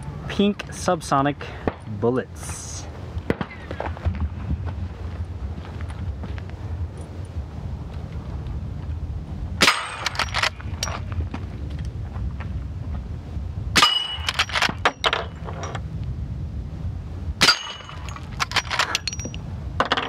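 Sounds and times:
low rumble: 0.0 - 19.8
bullet clanging on steel: 9.6 - 11.0, 13.8 - 15.8, 17.4 - 20.0.

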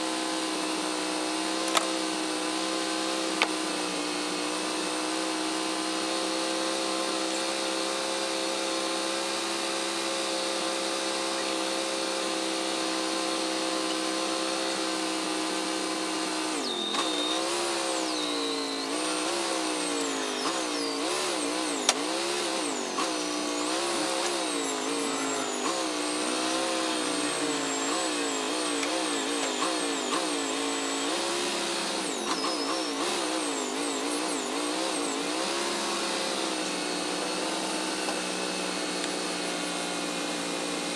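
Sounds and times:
sawmill engine running: 0.0 - 40.9.

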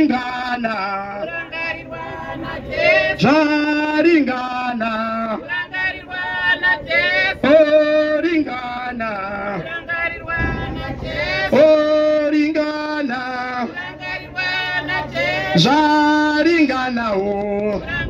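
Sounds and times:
group singing unaccompanied: 0.0 - 18.0.

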